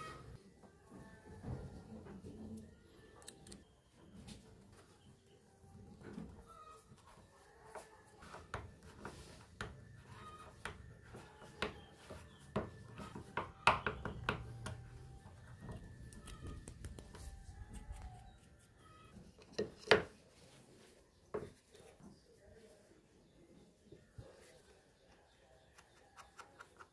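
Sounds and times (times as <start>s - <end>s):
chickens clucking: 6.0s - 8.3s.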